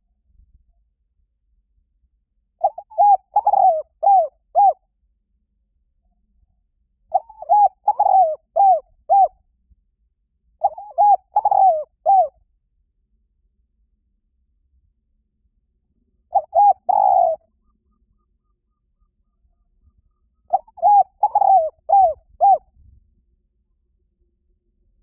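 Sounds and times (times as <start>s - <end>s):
dove cooing: 2.6s - 4.8s, 7.1s - 9.3s, 10.6s - 12.4s, 16.3s - 18.4s, 19.9s - 22.7s.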